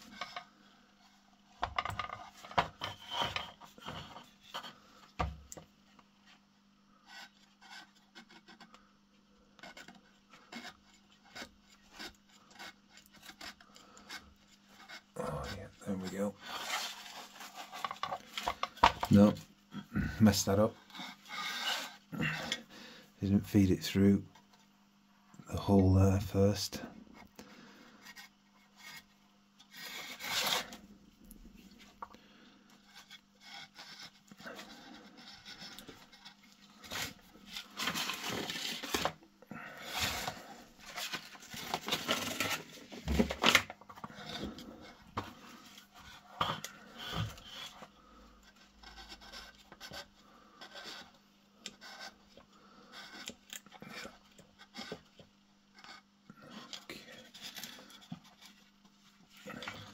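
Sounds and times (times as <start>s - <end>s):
cable rubbing and scraping on wood: 9.6s - 19.4s, 20.0s - 22.7s.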